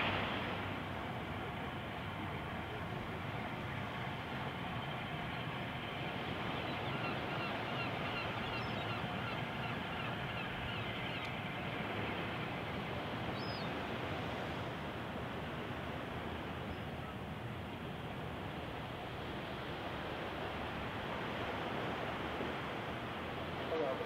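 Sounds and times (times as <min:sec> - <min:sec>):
gulls calling: 0:00.0 - 0:14.4, 0:15.5 - 0:19.1.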